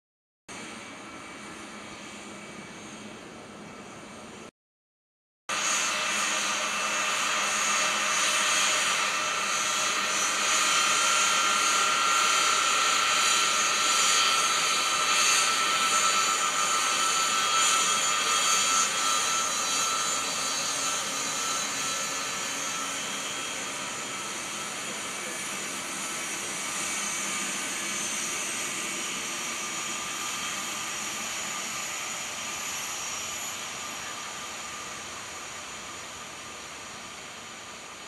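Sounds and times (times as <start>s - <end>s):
jet engines whining: 5.5s - 38.0s.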